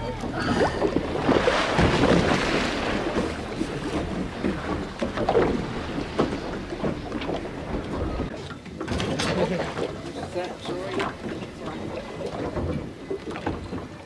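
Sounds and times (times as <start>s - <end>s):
low steady hum: 0.0s - 8.3s
sea noise: 0.0s - 14.0s
wind: 0.0s - 14.0s.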